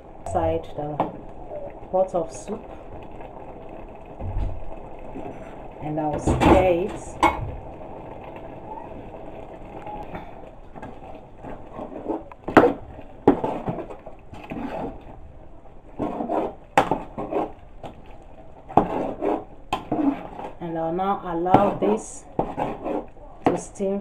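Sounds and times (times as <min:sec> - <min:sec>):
soup being stirred in pot: 0:10.5 - 0:20.6, 0:21.5 - 0:23.7.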